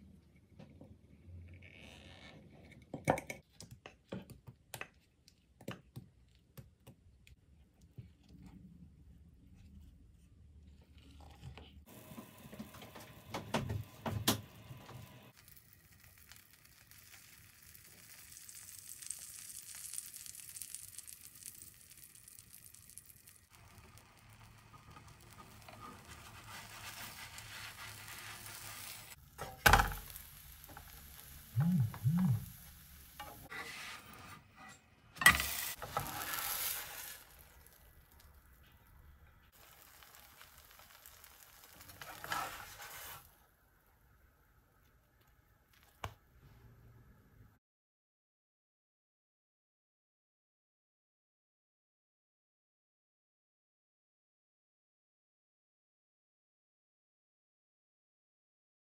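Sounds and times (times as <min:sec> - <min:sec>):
batter sizzling in a frying pan: 0:11.9 - 0:33.5, 0:35.2 - 0:38.6, 0:39.5 - 0:43.4.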